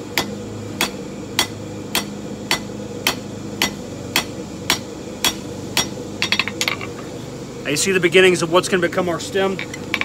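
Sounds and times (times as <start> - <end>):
steady low hum: 0.0 - 10.0
hammer striking hot metal on anvil: 0.1 - 6.8.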